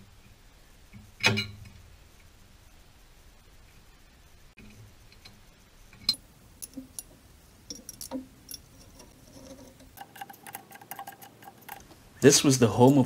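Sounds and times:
tools and bolts clinking on metal: 0:06.0 - 0:12.0.

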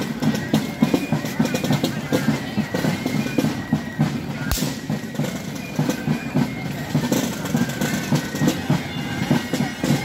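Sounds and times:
drums beating marching rhythm: 0:00.0 - 0:10.0
sharp drum crack: 0:04.5 - 0:04.9.

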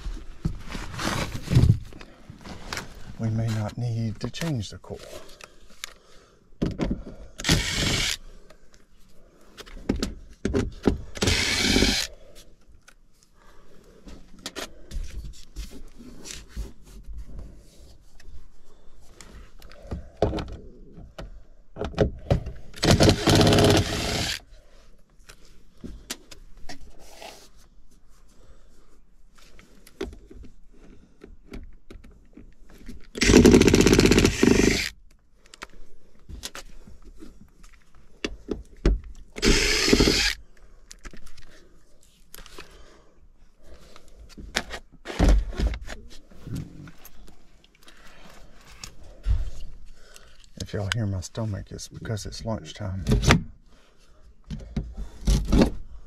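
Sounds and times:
impact driver running: 0:07.4 - 0:08.2, 0:11.2 - 0:12.1, 0:22.8 - 0:24.4, 0:33.2 - 0:34.9, 0:39.4 - 0:40.4.

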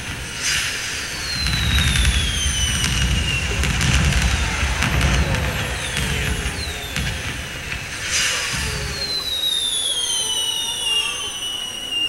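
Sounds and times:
firework crackles: 0:00.0 - 0:12.0
firework whistle falling in pitch: 0:00.0 - 0:12.0
low rumble: 0:01.4 - 0:09.1.

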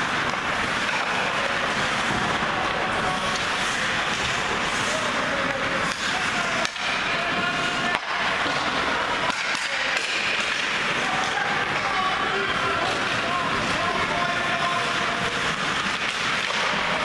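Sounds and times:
skates scraping on ice: 0:00.0 - 0:17.0
sticks and puck clacking: 0:00.0 - 0:17.0.

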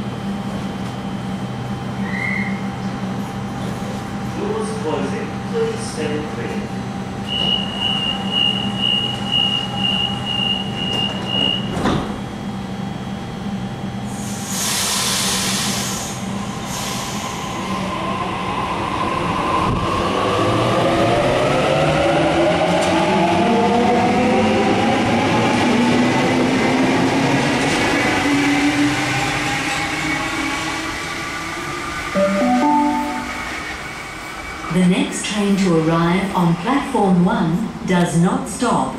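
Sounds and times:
door closing warning beeps: 0:07.3 - 0:11.8
train doors thudding shut: 0:10.8 - 0:12.3
air hiss: 0:14.2 - 0:17.2
station announcement chime: 0:32.1 - 0:33.9.

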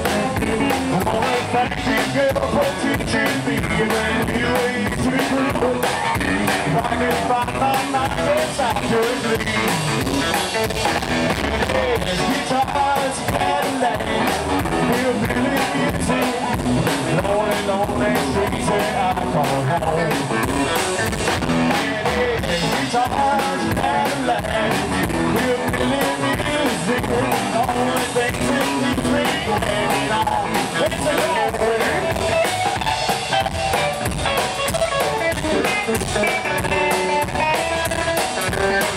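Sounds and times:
driving drum kit: 0:00.0 - 0:38.9
twanging electric guitar: 0:00.0 - 0:38.9
upright bass: 0:00.0 - 0:38.9.

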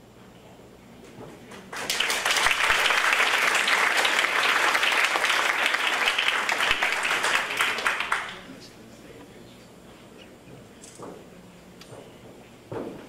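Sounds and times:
audience applauding: 0:01.6 - 0:08.6.

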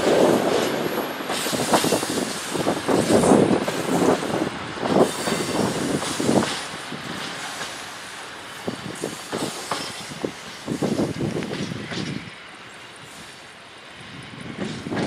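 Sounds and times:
train wheels clattering over rail joints: 0:00.0 - 0:13.5, 0:14.3 - 0:15.0.

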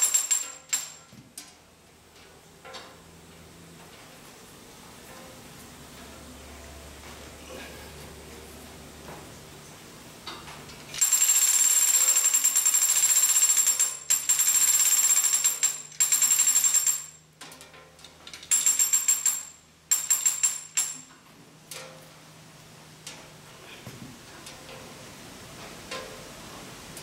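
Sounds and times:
hoist chain rattling and clicking: 0:00.0 - 0:01.1, 0:11.0 - 0:21.1.

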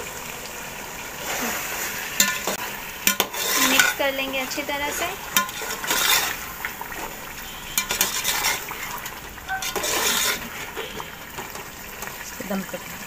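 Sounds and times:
food sizzling: 0:00.0 - 0:13.0
metal spoon scraping a metal pot: 0:02.2 - 0:04.1, 0:04.8 - 0:06.5, 0:07.7 - 0:11.6.

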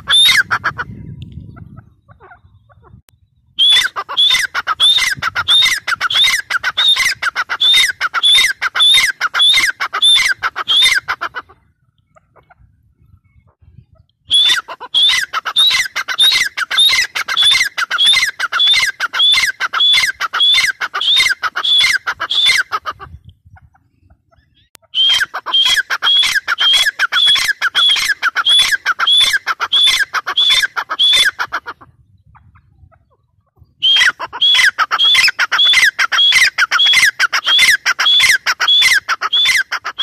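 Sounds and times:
francolin calling shrill notes: 0:24.9 - 0:31.3.

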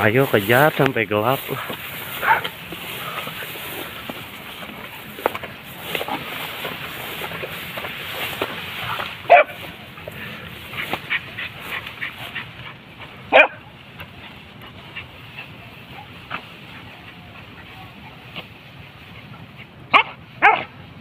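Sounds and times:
hunting dogs barking: 0:00.6 - 0:18.4, 0:19.1 - 0:20.8
dogs yipping: 0:02.0 - 0:03.2, 0:08.8 - 0:10.0, 0:10.6 - 0:18.2, 0:19.1 - 0:20.8.

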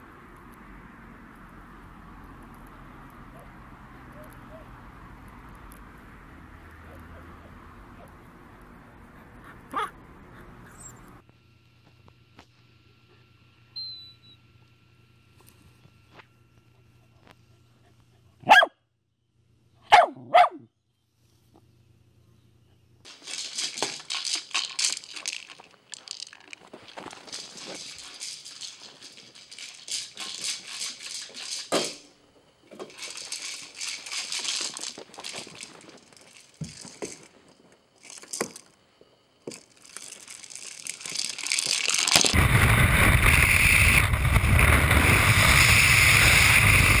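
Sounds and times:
toy ball rattling on carpet: 0:23.1 - 0:32.1, 0:32.7 - 0:38.7, 0:39.4 - 0:42.4.

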